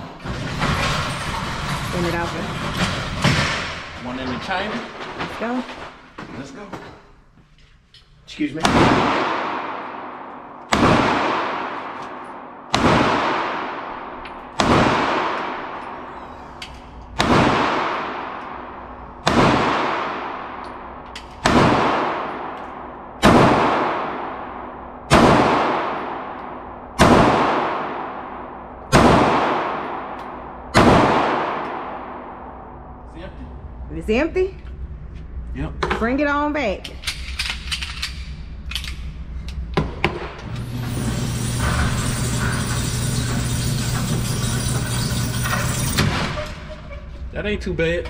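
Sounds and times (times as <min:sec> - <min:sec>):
pistol shots echoing indoors: 0:08.6 - 0:33.1.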